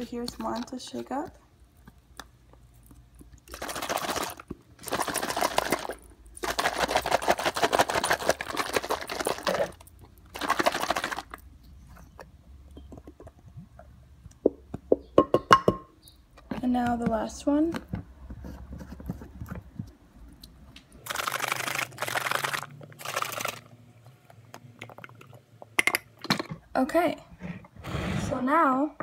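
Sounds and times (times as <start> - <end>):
liquid sloshing in shaken bottle: 3.5 - 11.4, 21.0 - 23.7.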